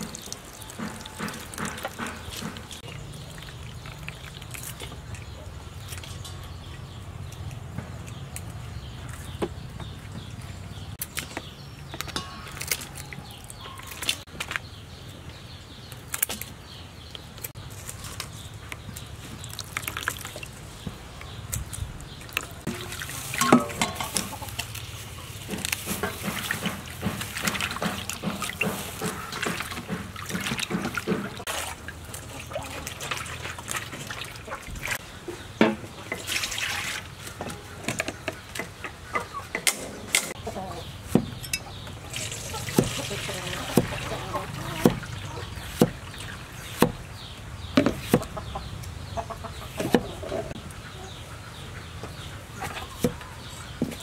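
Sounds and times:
water splashing and dripping: 0:00.0 - 0:14.6, 0:18.5 - 0:40.4, 0:41.5 - 0:48.2.

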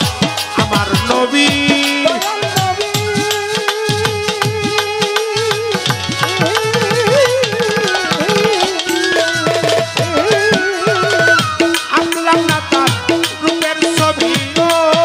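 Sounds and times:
hand drums with sliding bass: 0:00.0 - 0:15.0
wavering melody line: 0:06.2 - 0:12.0.

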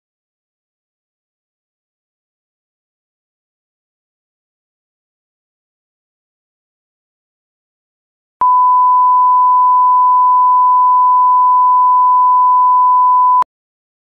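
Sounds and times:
steady electronic beep: 0:08.4 - 0:13.4.

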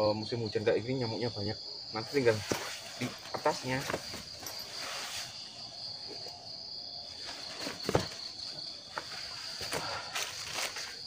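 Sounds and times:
insects trilling: 0:00.0 - 0:11.0
rustles and knocks in tent: 0:02.2 - 0:05.4, 0:07.2 - 0:11.0.

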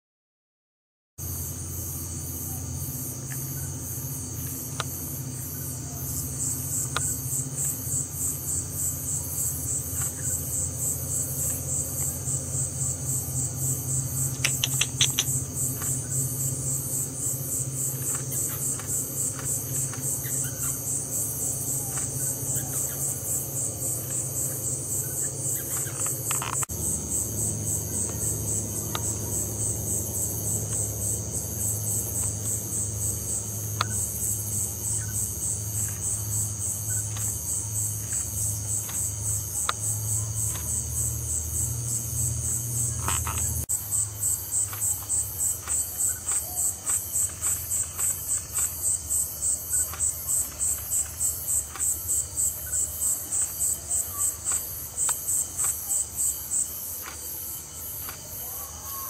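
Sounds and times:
low pulsing hum: 0:01.2 - 0:55.5
insects trilling: 0:01.2 - 0:59.0.

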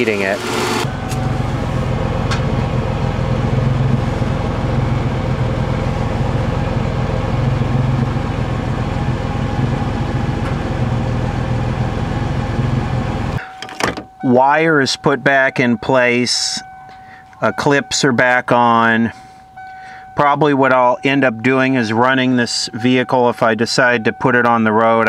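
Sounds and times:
car engine idling: 0:00.0 - 0:13.6.

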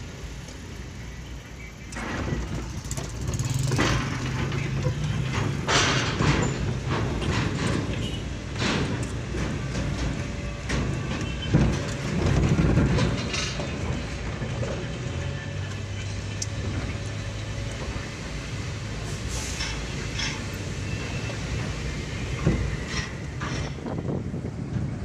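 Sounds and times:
car engine and tyre rumble: 0:00.0 - 0:25.0
car clunking over steel ramp: 0:02.0 - 0:15.4.

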